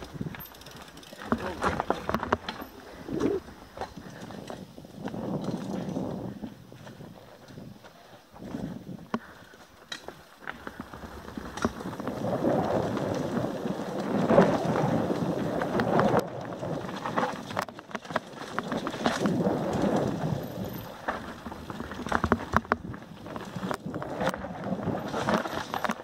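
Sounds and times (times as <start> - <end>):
bike rattling and knocking: 0.0 - 26.0
bike tyres rumbling over dirt: 0.0 - 26.0
wind buffeting microphone: 1.3 - 9.4, 10.7 - 17.5.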